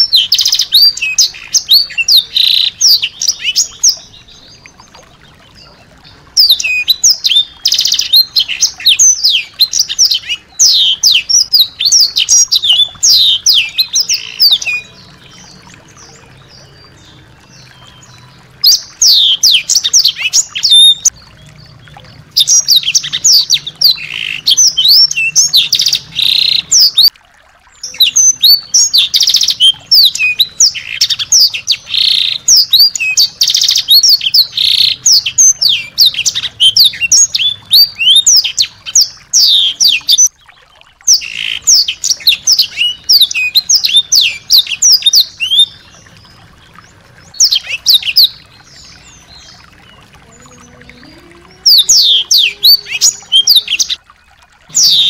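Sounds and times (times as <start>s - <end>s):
songbird singing high notes: 47.2s - 55.0s.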